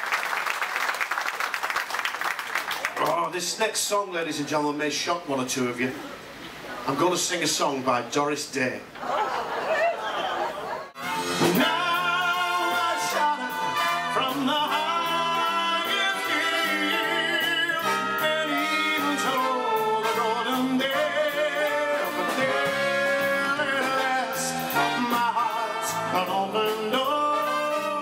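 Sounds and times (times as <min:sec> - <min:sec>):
live band playing: 0:10.9 - 0:28.0
man singing into a microphone: 0:11.3 - 0:28.0.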